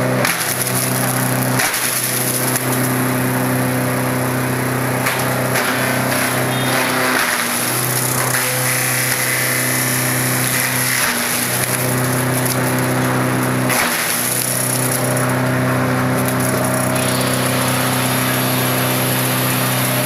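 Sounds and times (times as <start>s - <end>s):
shredder machine hum: 0.0s - 20.0s.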